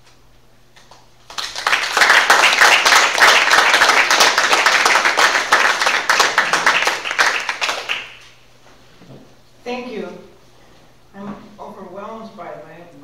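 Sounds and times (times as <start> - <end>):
audience applauding: 1.3 - 8.4.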